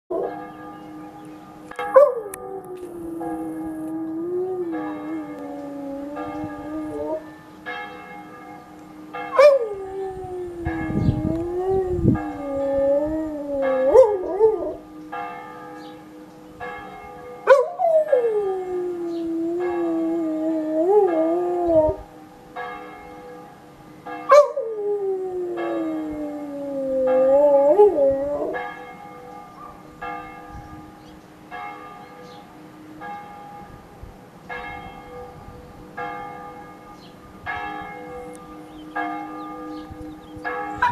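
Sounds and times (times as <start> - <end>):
church bells ringing: 0.1 - 40.9
dog howling: 2.0 - 7.4, 9.3 - 14.8, 17.5 - 22.1, 24.3 - 28.6.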